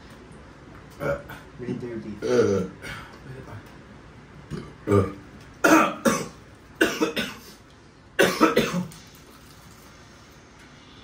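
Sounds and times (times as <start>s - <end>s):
person coughing: 2.2s - 3.1s, 4.9s - 7.6s, 8.2s - 9.0s.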